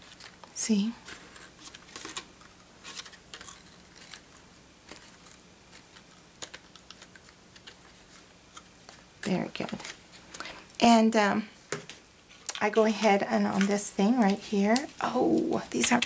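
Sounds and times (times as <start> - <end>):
card stock clicking and rustling: 0.0 - 10.4.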